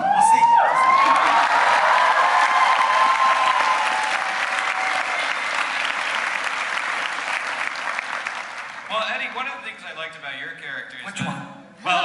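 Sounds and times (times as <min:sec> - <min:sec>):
people cheering: 0:00.0 - 0:09.0
audience applauding: 0:00.7 - 0:09.1.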